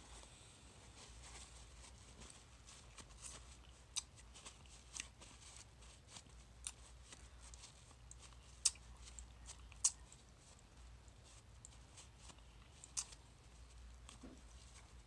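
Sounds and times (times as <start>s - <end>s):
paper napkin rustling and crackling: 0.8s - 9.6s.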